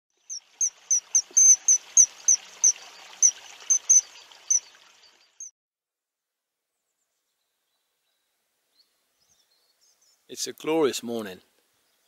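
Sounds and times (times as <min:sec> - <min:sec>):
bird shrill high-pitched call: 0:00.3 - 0:04.7.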